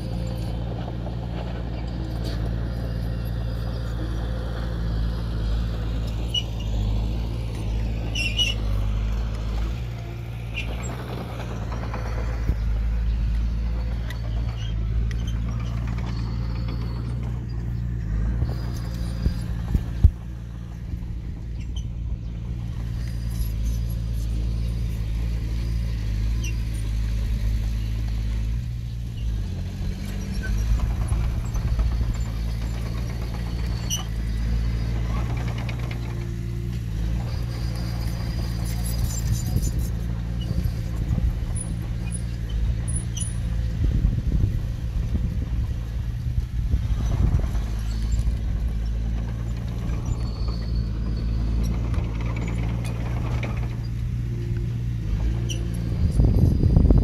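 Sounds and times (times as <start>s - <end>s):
diesel engine of heavy machinery: 0.0s - 57.0s.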